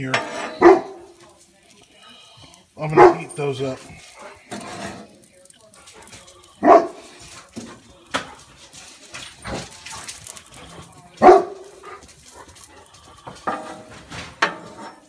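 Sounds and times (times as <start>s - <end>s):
metal spatula scraping griddle: 0.0s - 12.0s, 13.2s - 15.0s
dog barking: 0.6s - 1.2s, 2.8s - 3.4s, 6.6s - 7.4s, 11.2s - 12.6s.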